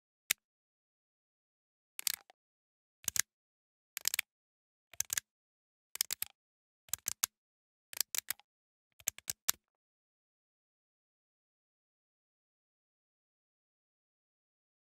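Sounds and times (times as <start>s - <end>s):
plastic switch clicking and creaking: 2.0s - 2.3s, 3.0s - 3.3s, 4.0s - 4.3s, 5.0s - 5.2s, 6.0s - 6.3s, 6.9s - 7.3s, 8.0s - 8.4s, 9.0s - 9.6s.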